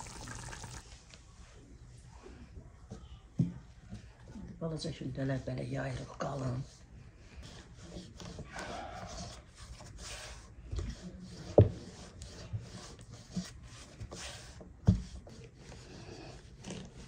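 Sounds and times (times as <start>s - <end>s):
rubbing and scraping strokes: 5.3s - 17.0s.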